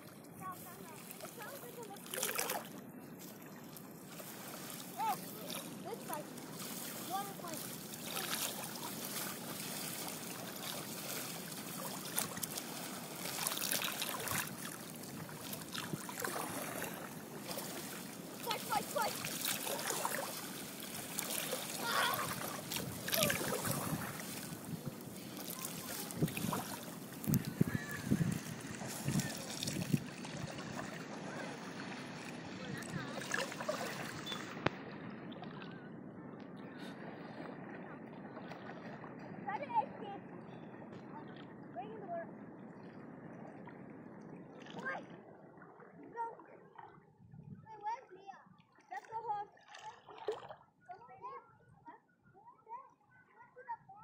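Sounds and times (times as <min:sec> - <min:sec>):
small water splashes: 0:00.0 - 0:35.9, 0:36.6 - 0:39.4, 0:42.8 - 0:47.2, 0:47.8 - 0:51.2
river water lapping and trickling: 0:00.0 - 0:54.0
faint distant voices: 0:21.2 - 0:42.1.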